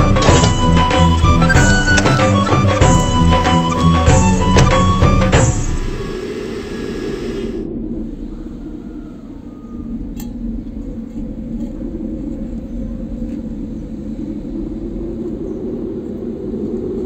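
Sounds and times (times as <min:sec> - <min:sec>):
music: 0:00.0 - 0:06.2
low outdoor rumble: 0:00.0 - 0:17.0.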